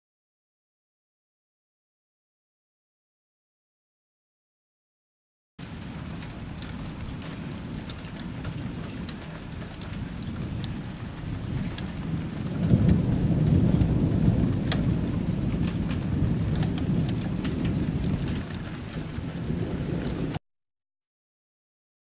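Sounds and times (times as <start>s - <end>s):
rain falling: 5.6s - 20.4s
thunder rumbling: 5.6s - 20.4s.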